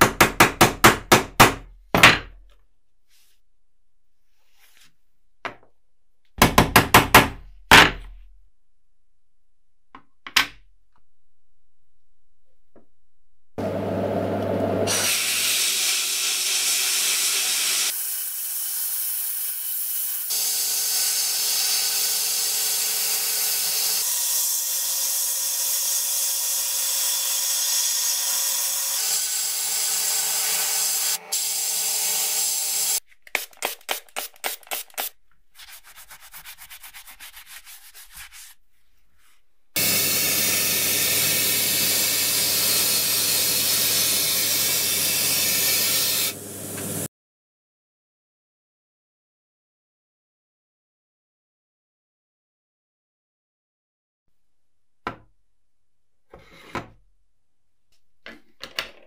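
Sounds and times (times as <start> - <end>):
sandblaster hissing: 39.8 - 47.1
spray gun hissing: 39.8 - 47.1.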